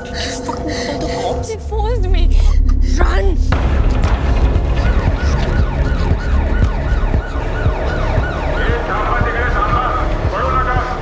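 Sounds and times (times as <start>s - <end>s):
deep low rumble: 0.0s - 11.0s
police siren sweeping: 4.5s - 10.9s.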